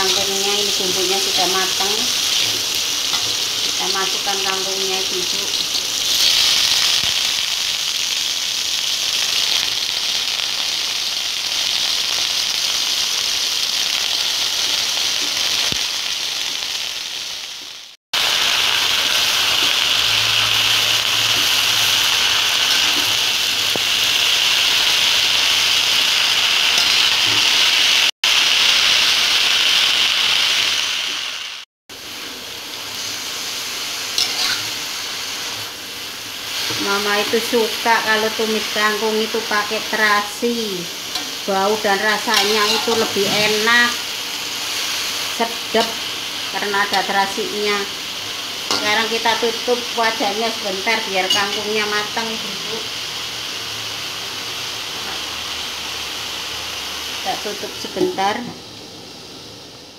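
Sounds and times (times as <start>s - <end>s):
greens sizzling in hot oil: 0.0s - 59.9s.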